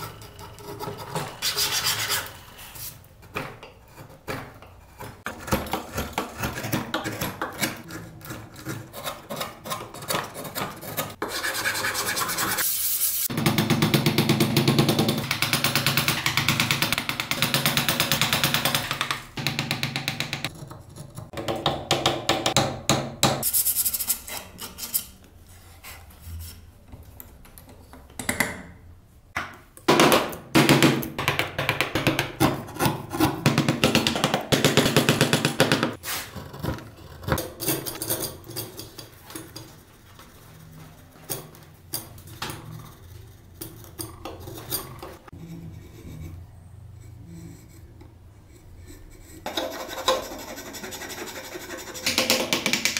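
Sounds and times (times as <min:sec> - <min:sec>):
hand tools scraping wood: 0:00.0 - 0:03.0, 0:35.3 - 0:37.4, 0:43.8 - 0:52.6.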